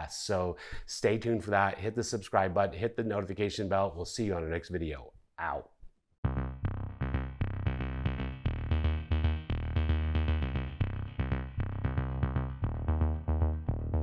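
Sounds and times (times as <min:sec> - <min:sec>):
electronic music with strong bass: 0:06.2 - 0:14.0.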